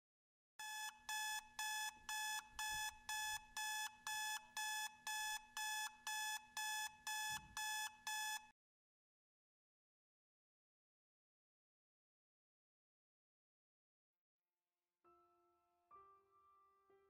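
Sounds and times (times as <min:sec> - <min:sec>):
electronic alarm beeping: 0:00.6 - 0:08.5.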